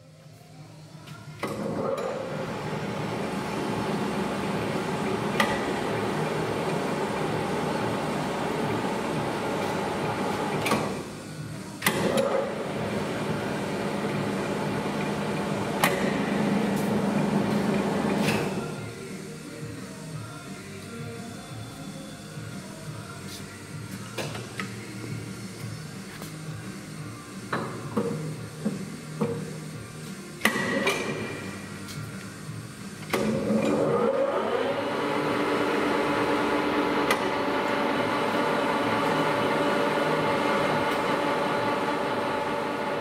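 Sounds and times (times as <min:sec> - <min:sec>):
lathe whirring: 0:01.6 - 0:11.0, 0:11.8 - 0:18.6, 0:33.1 - 0:43.0.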